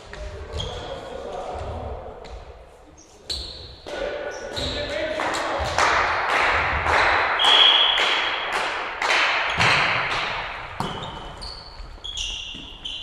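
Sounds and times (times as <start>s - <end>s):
volleyball thumping: 6.6s - 11.4s
referee's whistle: 7.4s - 8.2s
shoes squeaking on wooden floor: 10.8s - 13.0s.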